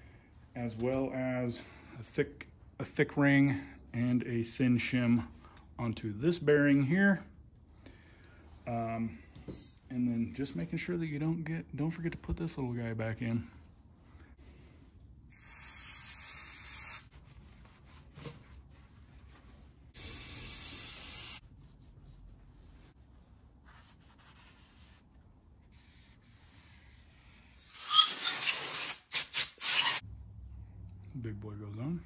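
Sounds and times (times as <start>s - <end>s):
wiping and handling parts: 17.1s - 20.3s, 21.4s - 28.0s
aerosol spray bursts: 20.0s - 21.4s.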